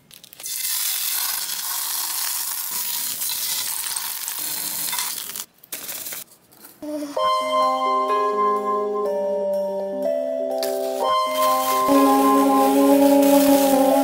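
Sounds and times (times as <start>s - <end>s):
meat sizzling in a skillet: 0.5s - 5.0s.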